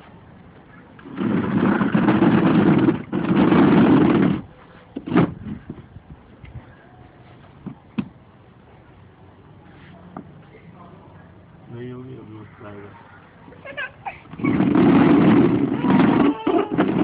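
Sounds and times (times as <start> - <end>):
plastic chair scraping on concrete: 1.0 - 5.8, 14.2 - 17.0.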